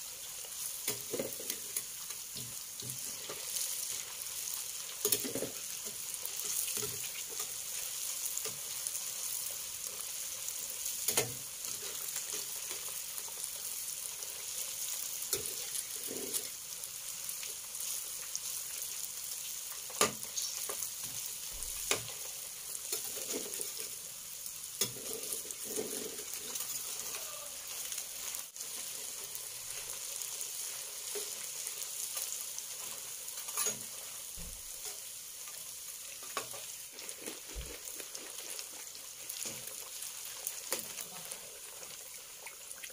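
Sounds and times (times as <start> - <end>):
crackers sizzling in hot oil: 0.0 - 42.9
metal spatula scraping wok: 24.8 - 27.8, 33.4 - 34.1.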